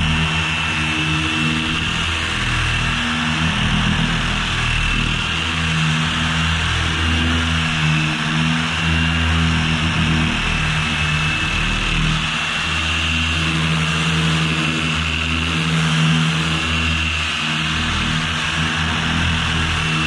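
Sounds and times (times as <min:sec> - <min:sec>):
orbital sander running: 0:00.0 - 0:20.0.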